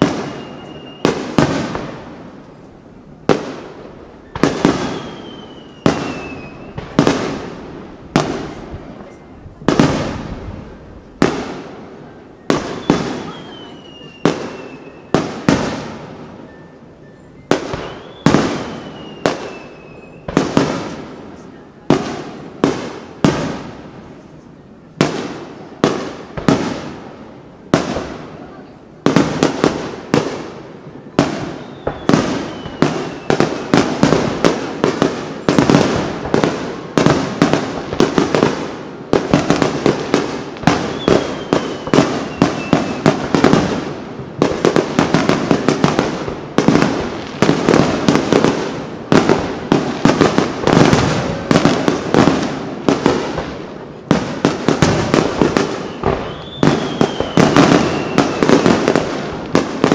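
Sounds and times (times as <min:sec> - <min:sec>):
faint falling firework whistle: 0:00.0 - 0:01.2, 0:04.2 - 0:07.0, 0:12.4 - 0:15.3, 0:16.3 - 0:20.4, 0:31.2 - 0:33.9, 0:40.8 - 0:43.2, 0:55.7 - 0:58.8
firework bangs and crackle: 0:00.0 - 0:59.9.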